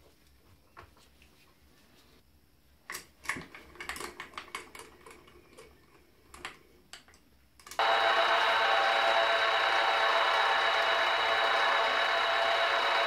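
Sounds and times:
milling machine motor whine: 0:07.8 - 0:13.0.

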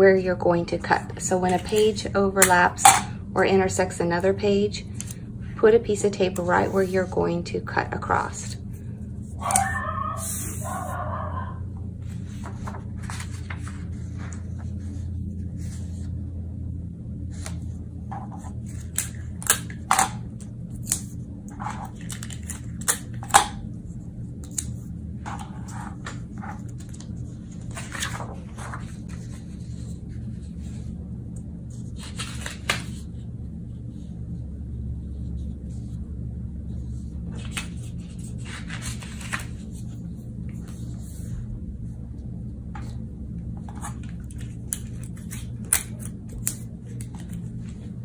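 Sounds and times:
steady low hum: 0:00.0 - 0:48.0
paper sheets rustling and crinkling: 0:12.0 - 0:16.2, 0:21.5 - 0:23.0, 0:24.5 - 0:30.9, 0:31.7 - 0:33.1, 0:36.8 - 0:41.4.

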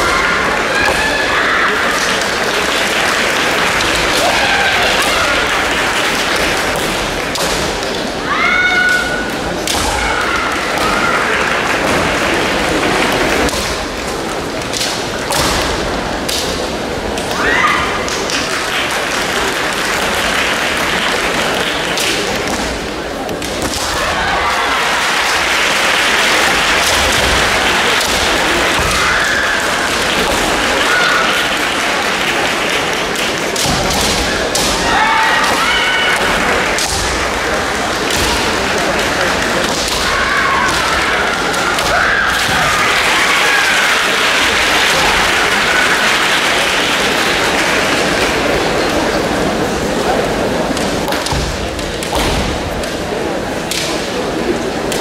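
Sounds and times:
high shouts: 0:00.0 - 0:02.4, 0:04.0 - 0:05.7, 0:08.2 - 0:11.6, 0:23.6 - 0:31.7, 0:34.6 - 0:36.8, 0:39.9 - 0:44.3
echoing hall din: 0:00.0 - 0:55.0.

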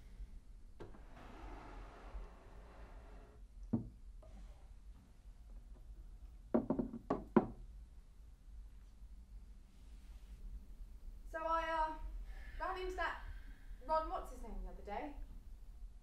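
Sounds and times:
wooden knocks and clunks: 0:03.7 - 0:04.0, 0:06.5 - 0:07.6.

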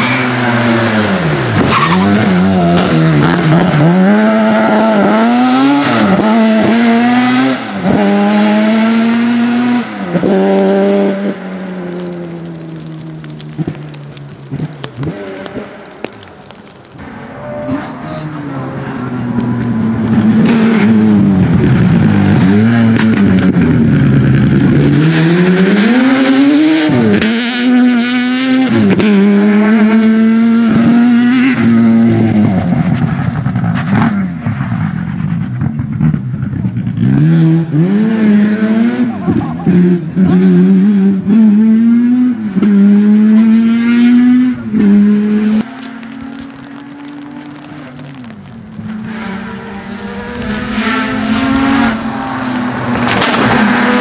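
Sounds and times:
rally car engine revving past: 0:00.0 - 0:11.4, 0:36.9 - 0:54.0.

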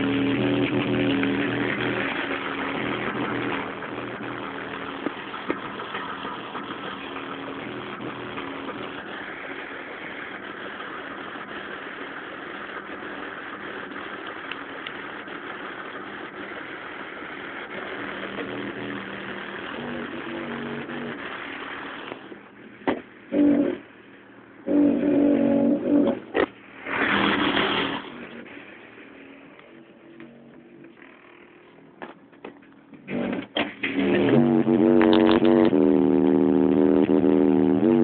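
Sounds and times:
car engine running: 0:00.0 - 0:23.8.

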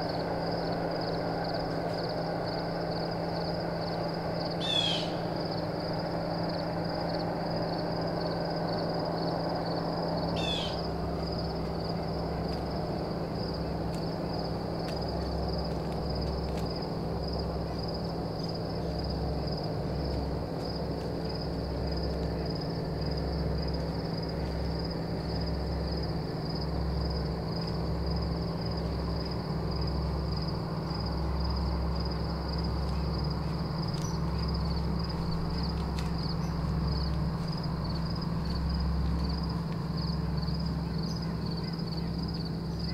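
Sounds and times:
owl hooting: 0:04.6 - 0:05.3, 0:10.4 - 0:10.8.

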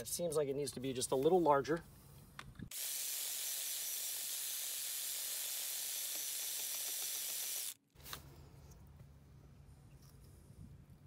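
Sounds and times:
drill grinding into concrete: 0:02.7 - 0:07.8.

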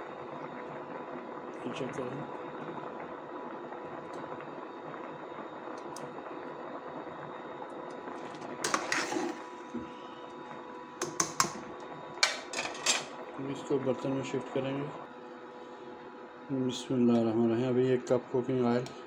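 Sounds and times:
pot bubbling: 0:00.1 - 0:12.5.

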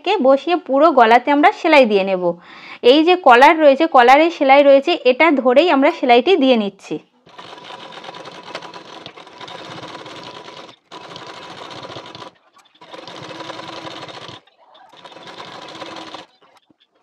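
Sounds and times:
sewing machine stitching fabric: 0:07.3 - 0:16.6.

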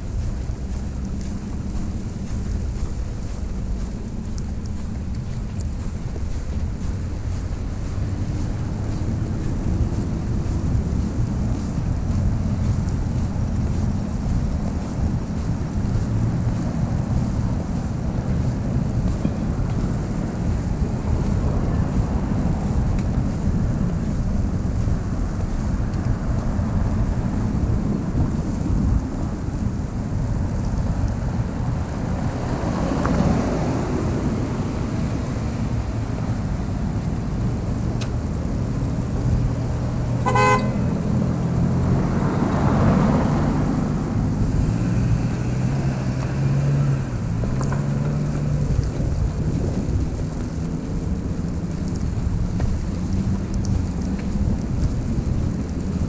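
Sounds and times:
car tyres hissing on snow: 0:00.0 - 0:56.0
vehicle engine hum: 0:00.0 - 0:56.0
wind rumble: 0:00.0 - 0:56.0
car horn toot: 0:40.2 - 0:41.0.

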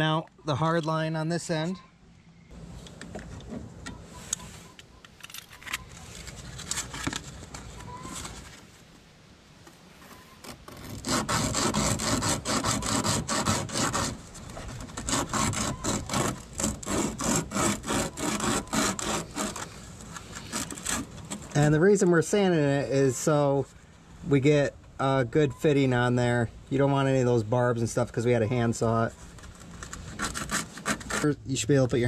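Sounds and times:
sandpaper rubbing on metal pipe: 0:10.2 - 0:21.6, 0:29.8 - 0:31.4.

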